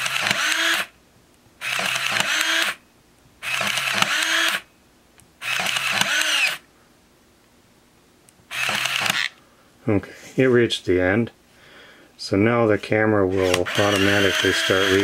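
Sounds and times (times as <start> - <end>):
camera film advance motor whirring: 0.0 - 0.9, 1.6 - 2.8, 3.4 - 4.6, 5.4 - 6.6, 8.5 - 9.4, 13.4 - 15.0
camera shutter release: 0.0 - 0.9, 1.6 - 2.8, 3.4 - 4.7, 5.4 - 6.6, 8.5 - 9.4, 13.4 - 15.0.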